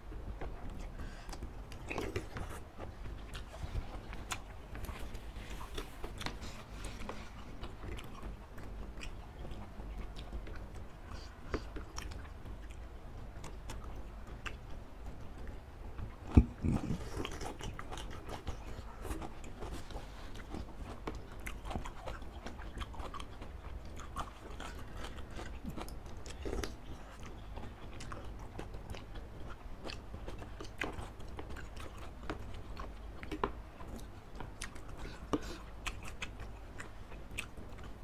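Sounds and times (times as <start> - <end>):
chewing and slurping noodles: 15.5 - 38.0.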